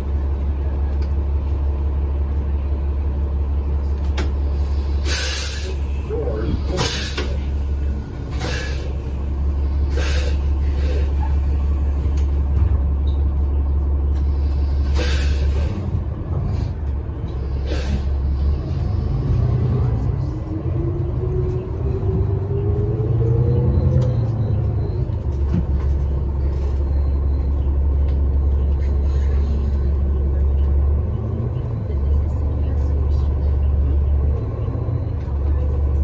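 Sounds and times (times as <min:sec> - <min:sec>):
bus engine droning: 0:00.0 - 0:36.0
air brake hisses: 0:04.6 - 0:06.0, 0:06.7 - 0:07.5, 0:08.3 - 0:09.0, 0:09.9 - 0:11.1, 0:14.8 - 0:15.8, 0:17.6 - 0:18.2.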